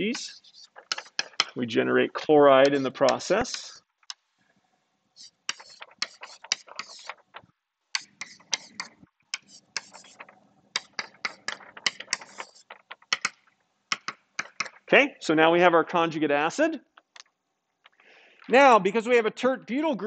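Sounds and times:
chalk tapping and scraping: 0:00.0 - 0:01.6, 0:02.5 - 0:04.3, 0:05.2 - 0:07.4, 0:08.0 - 0:14.8.

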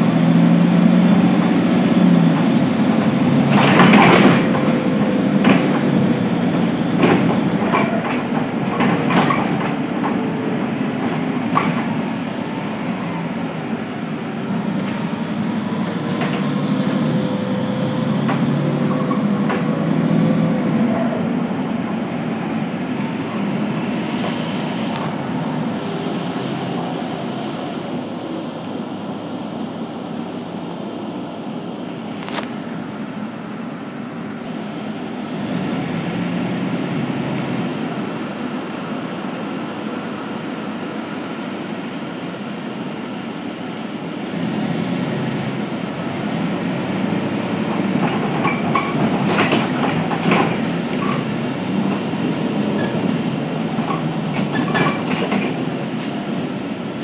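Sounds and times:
level whine: 0:00.0 - 0:44.1
bus engine and road noise: 0:00.0 - 0:57.0.

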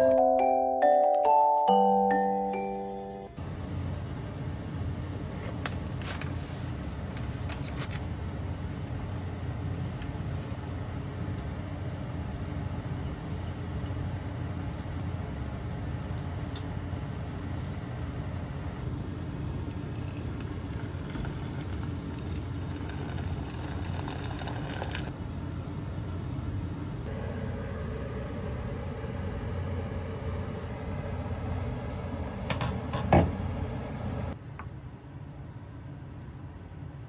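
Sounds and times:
pot boiling on gas stove: 0:18.8 - 0:25.2.

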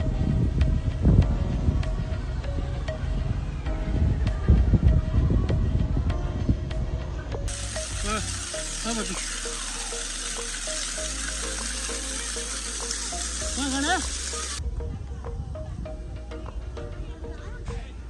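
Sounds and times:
simple melody background music: 0:00.0 - 0:18.0
loud steady hiss: 0:07.5 - 0:14.6.

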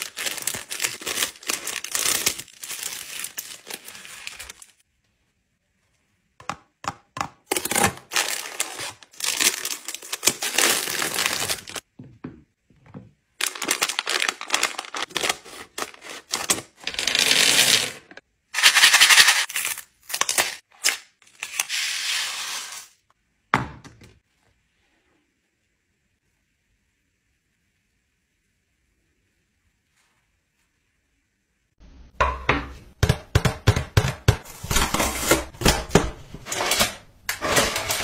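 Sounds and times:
scissors cutting plastic bag: 0:00.0 - 0:04.7, 0:07.5 - 0:11.8, 0:13.4 - 0:17.8
candy packaging crinkling: 0:00.0 - 0:04.8, 0:07.5 - 0:11.8, 0:13.4 - 0:22.2.

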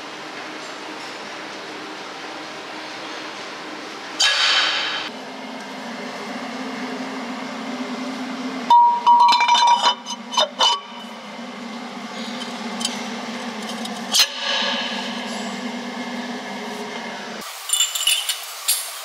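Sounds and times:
low workshop hum: 0:00.0 - 0:19.0
metal clinking and ringing: 0:08.7 - 0:11.0, 0:17.6 - 0:18.9.

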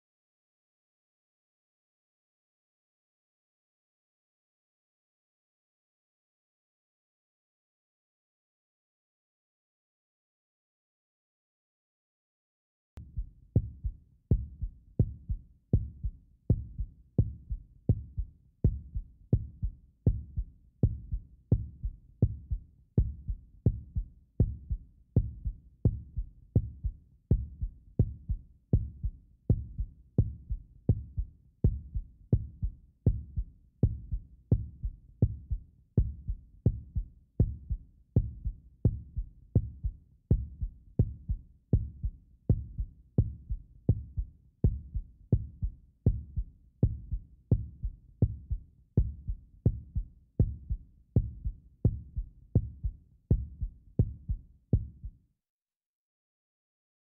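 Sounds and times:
heartbeat thumps: 0:13.0 - 0:55.1.

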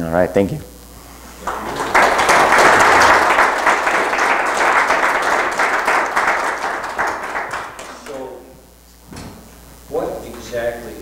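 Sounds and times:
small audience applauding: 0:01.3 - 0:08.4.

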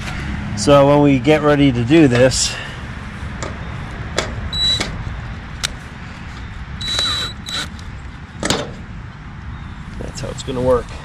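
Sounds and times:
cordless drill whining: 0:04.5 - 0:04.8, 0:06.8 - 0:07.8
metal and tool clicks: 0:06.8 - 0:07.8.

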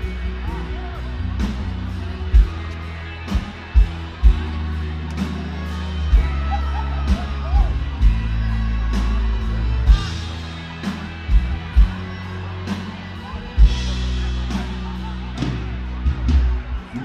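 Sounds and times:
live band playing amplified music: 0:00.0 - 0:17.0.

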